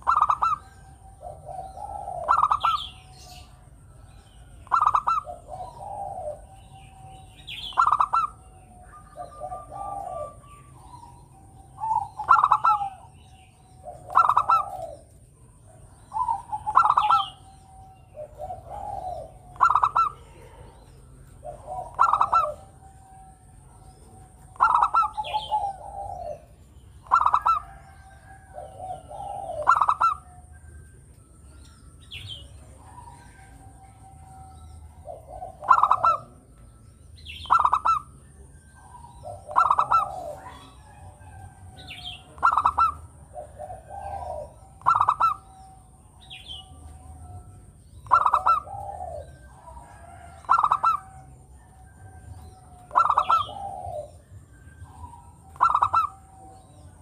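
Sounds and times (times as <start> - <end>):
dove cooing: 0.0 - 57.0.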